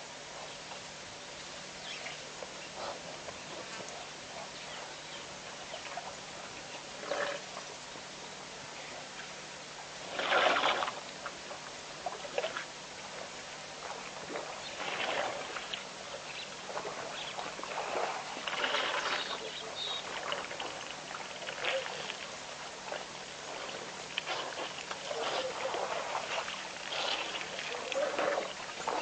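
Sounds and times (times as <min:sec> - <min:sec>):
steady background hiss: 0:00.0 - 0:29.0
water sloshing: 0:10.0 - 0:29.0.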